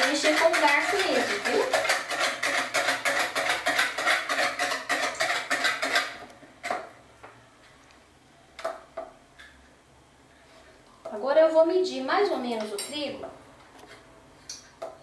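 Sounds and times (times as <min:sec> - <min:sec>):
whisk beating in plastic bowl: 0:00.0 - 0:06.9
whisk knocking in bowl: 0:00.0 - 0:06.9.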